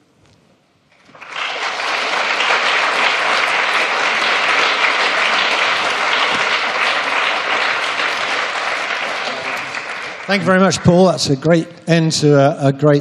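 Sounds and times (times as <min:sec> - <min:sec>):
audience applauding: 0:00.9 - 0:11.2.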